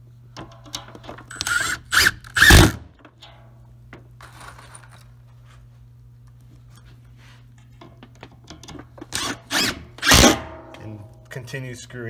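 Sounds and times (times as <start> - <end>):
power driver driving screw into metal: 1.3 - 2.8, 9.1 - 10.4.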